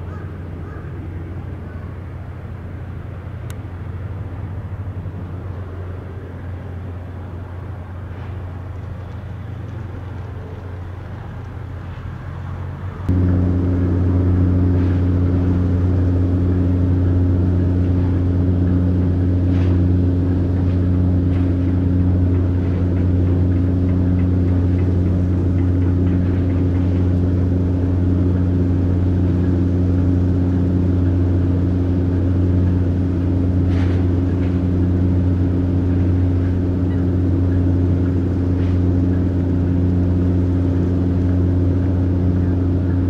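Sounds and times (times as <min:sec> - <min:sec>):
engine idling hum: 0:00.0 - 0:43.0.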